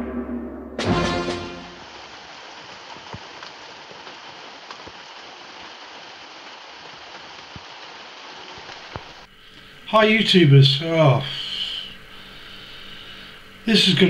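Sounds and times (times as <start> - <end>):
steady rain falling: 0.8 - 14.0
single raindrops: 1.2 - 9.7.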